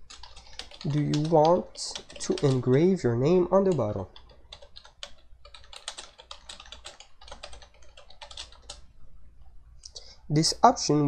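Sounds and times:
typing on computer keyboard: 0:00.0 - 0:03.0, 0:03.6 - 0:08.8.

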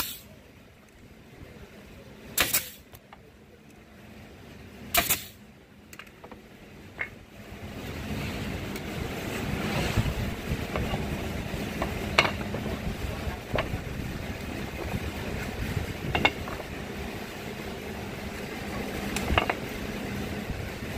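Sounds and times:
nail gun shot: 0:02.4 - 0:02.8, 0:04.9 - 0:05.4
wood pieces being handled: 0:05.9 - 0:07.2, 0:11.8 - 0:12.8, 0:19.1 - 0:19.6
rushing noise: 0:07.4 - 0:20.9.

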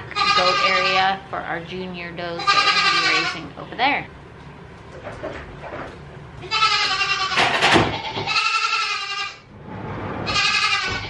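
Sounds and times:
goat bleating: 0:00.0 - 0:01.2, 0:02.3 - 0:03.5, 0:06.4 - 0:09.5, 0:10.2 - 0:11.0.

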